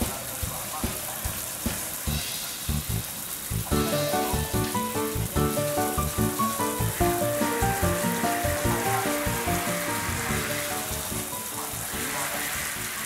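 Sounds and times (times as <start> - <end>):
steady hiss of water: 0.0 - 13.0
melody over bass line: 3.7 - 11.5.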